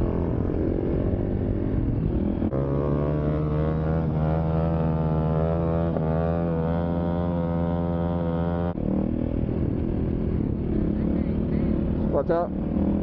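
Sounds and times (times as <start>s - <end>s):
dirt bike engines high-revving: 0.0s - 13.0s.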